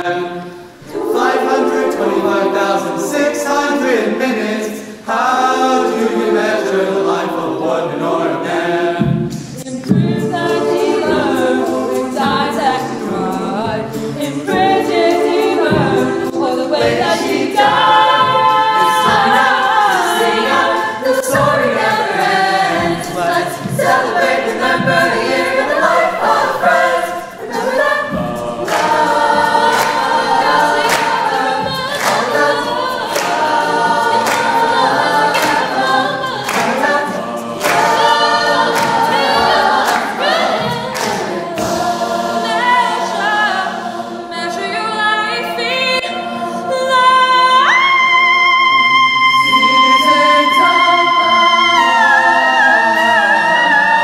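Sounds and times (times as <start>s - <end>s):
choir singing unaccompanied: 0.0s - 54.0s.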